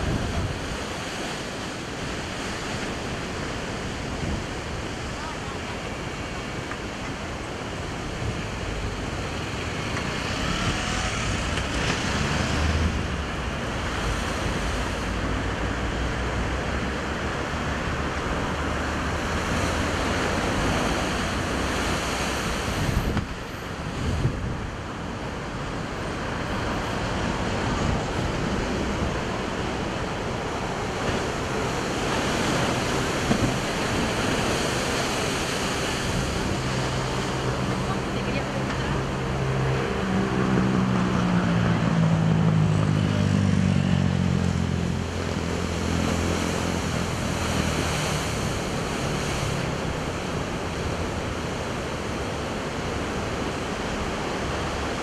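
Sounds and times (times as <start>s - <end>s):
ocean surf breaking on rocks: 0.0s - 41.8s, 42.4s - 55.0s
wind buffeting microphone: 19.6s - 25.6s.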